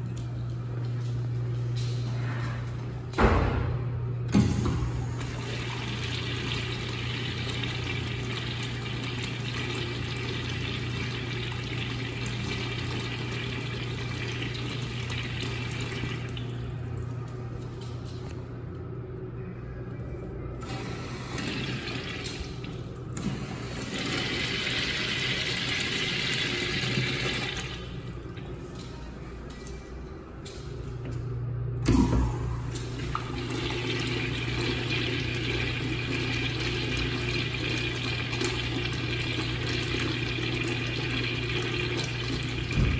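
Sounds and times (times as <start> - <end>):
urinal flushing: 4.3 - 17.9, 20.6 - 28.6, 31.8 - 42.9.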